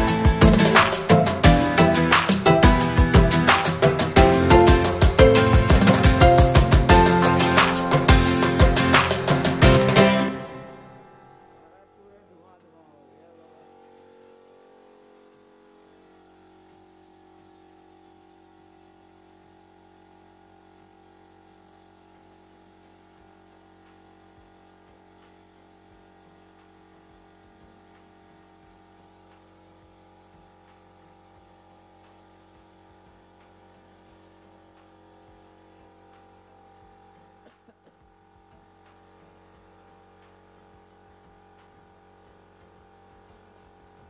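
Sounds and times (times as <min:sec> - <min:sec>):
spray gun hissing: 0:00.0 - 0:10.2
air compressor humming: 0:00.0 - 0:44.0.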